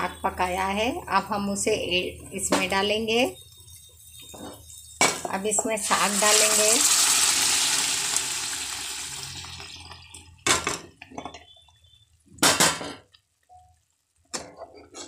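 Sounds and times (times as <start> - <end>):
food sizzling in hot pan: 3.2 - 10.4.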